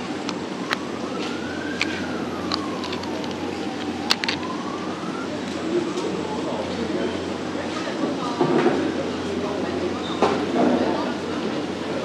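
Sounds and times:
siren wailing: 0.0s - 7.5s
background murmur: 0.0s - 12.0s.

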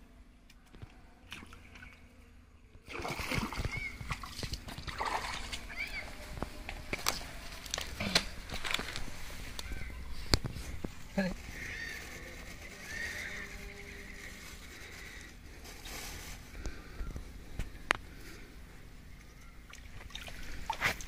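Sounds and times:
water splashing and sloshing: 0.8s - 11.3s, 19.6s - 21.0s.

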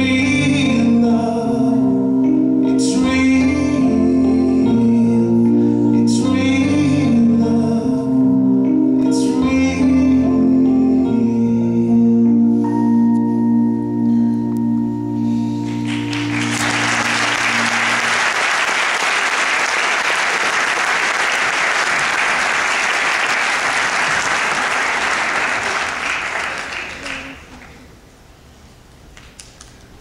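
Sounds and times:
audience applause: 15.7s - 27.9s.

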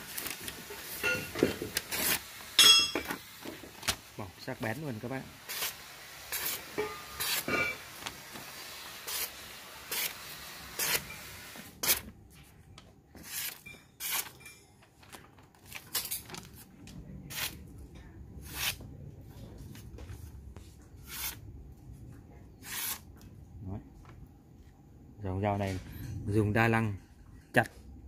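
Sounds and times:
knife slicing through paper: 5.4s - 8.2s, 9.0s - 11.2s, 13.2s - 14.3s, 17.3s - 17.6s, 18.4s - 18.8s, 21.0s - 21.4s, 22.6s - 23.0s.

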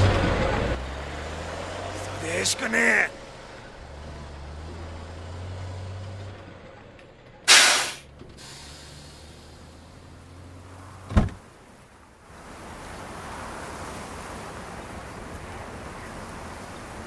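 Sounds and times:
truck engine idling: 0.0s - 10.4s
loud short burst of noise: 7.5s - 9.0s.

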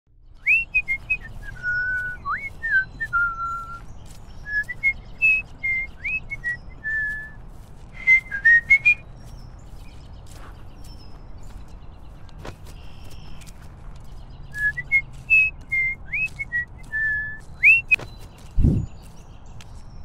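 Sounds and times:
person whistling a tune: 0.4s - 3.8s, 4.5s - 7.4s, 8.0s - 9.0s, 14.6s - 18.0s.

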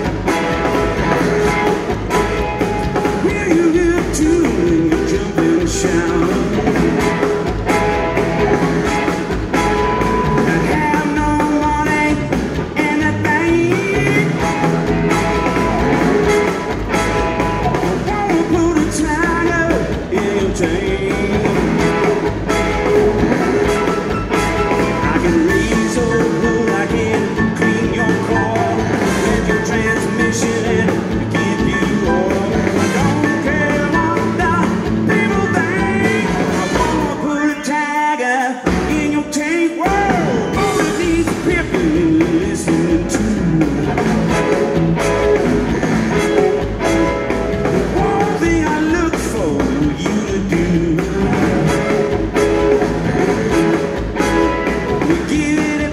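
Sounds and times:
blues-rock band playing: 0.0s - 55.9s
male singer: 2.8s - 7.3s, 10.1s - 14.7s, 17.6s - 22.1s, 24.8s - 44.4s, 47.8s - 51.9s, 54.9s - 55.9s.

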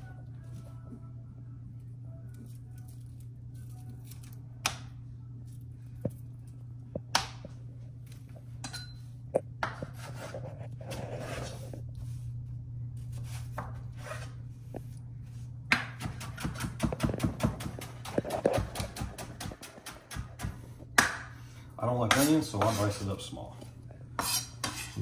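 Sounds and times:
low hum: 0.0s - 16.0s
knife chopping on wooden board: 22.0s - 22.8s.

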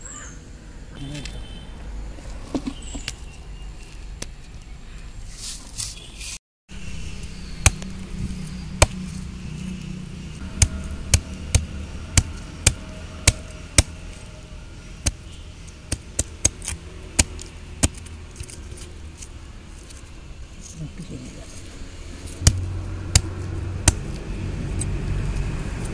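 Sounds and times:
knife chopping into wood: 22.4s - 24.2s.

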